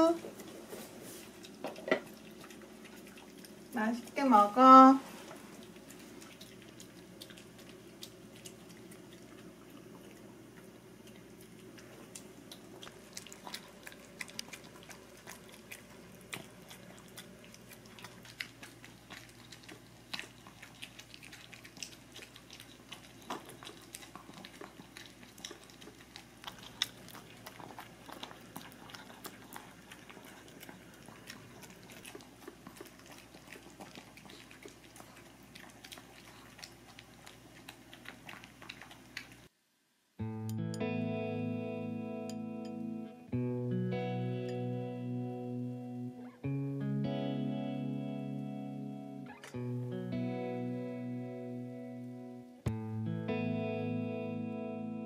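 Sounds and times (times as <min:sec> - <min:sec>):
dogs chewing food: 0:00.0 - 0:39.5.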